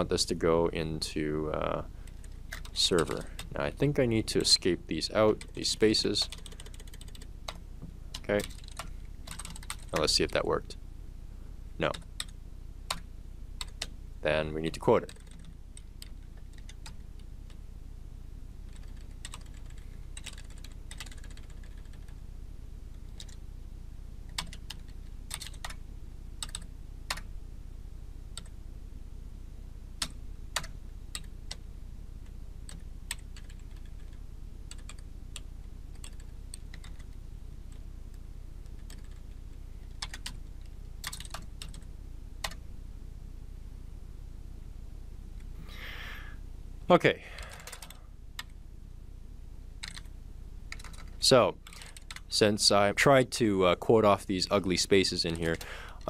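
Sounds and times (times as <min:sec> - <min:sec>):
keyboard typing: 0:02.0 - 0:03.6, 0:05.2 - 0:10.2, 0:11.8 - 0:13.9, 0:15.0 - 0:17.6, 0:18.7 - 0:22.1, 0:23.1 - 0:23.4, 0:24.3 - 0:25.8, 0:26.4 - 0:27.3, 0:32.7 - 0:35.0, 0:35.9 - 0:37.8, 0:38.6 - 0:42.6, 0:47.4 - 0:48.5, 0:49.8 - 0:50.1, 0:50.7 - 0:52.2.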